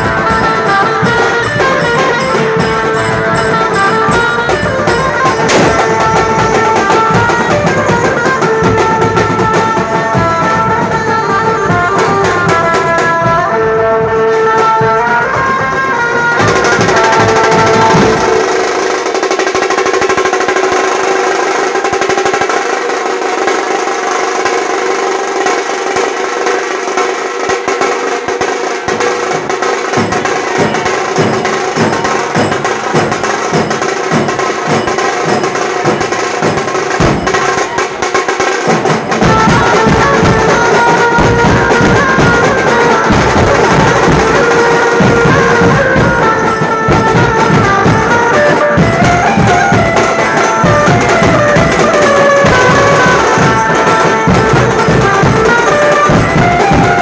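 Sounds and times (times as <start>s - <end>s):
horn melody: 0.0s - 19.4s, 36.2s - 57.0s
drums beating fast rhythm: 0.0s - 57.0s
street procession band playing: 0.0s - 57.0s.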